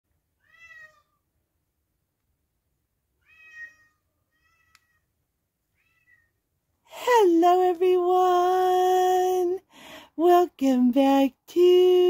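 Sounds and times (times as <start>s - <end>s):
cat meowing: 0.4s - 1.2s, 3.2s - 5.1s, 5.7s - 6.4s.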